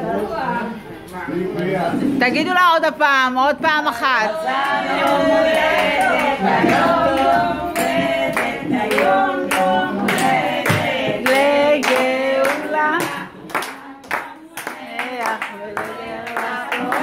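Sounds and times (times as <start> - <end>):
group of people singing: 3.8 - 17.0
hands clapping in rhythm: 4.6 - 17.0.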